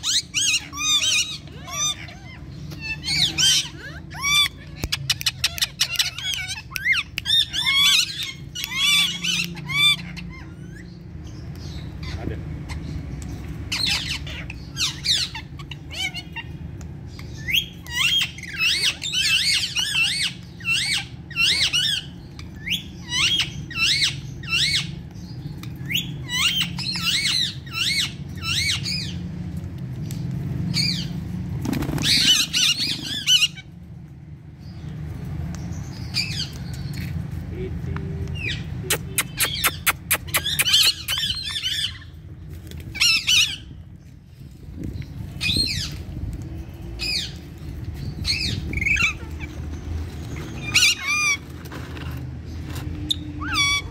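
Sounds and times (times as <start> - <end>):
parrots squawking: 0.0 - 29.2, 31.8 - 33.8, 38.2 - 44.0, 45.4 - 46.1, 47.0 - 53.9
wings flapping: 31.5 - 33.2.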